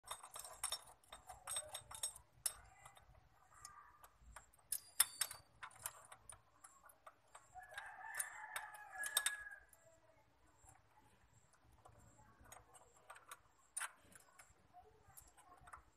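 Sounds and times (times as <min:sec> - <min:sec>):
metal parts clinking: 0:00.1 - 0:09.5.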